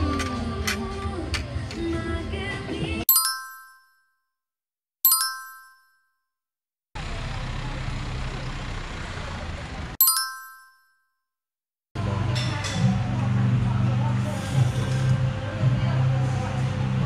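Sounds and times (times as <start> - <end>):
bright chime dings: 3.1 - 4.2, 5.0 - 6.2, 10.0 - 11.1.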